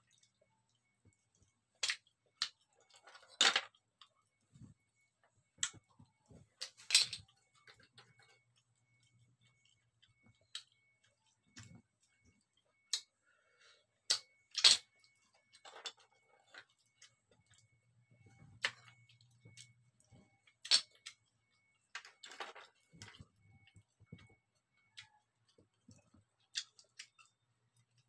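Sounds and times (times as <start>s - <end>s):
shells clicking and clattering: 14.1s - 14.8s.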